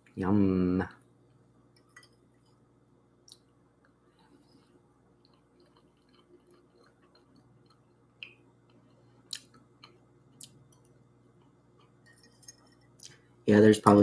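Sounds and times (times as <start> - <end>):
low steady hum: 0.0 - 14.0
person chewing: 4.2 - 12.1.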